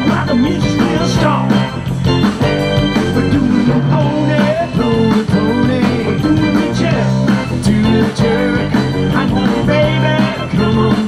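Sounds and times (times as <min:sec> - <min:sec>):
live rock band playing: 0:00.0 - 0:11.0
person singing: 0:02.9 - 0:11.0.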